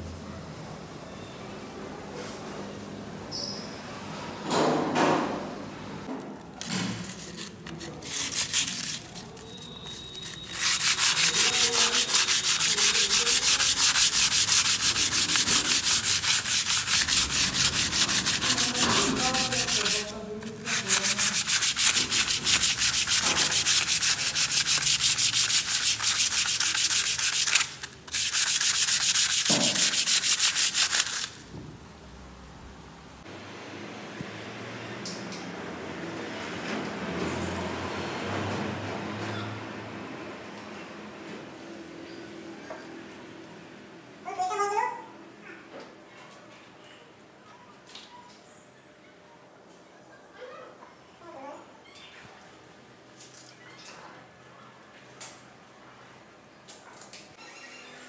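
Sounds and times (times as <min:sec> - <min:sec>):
sandpaper scraping on plaster: 0:06.6 - 0:31.5.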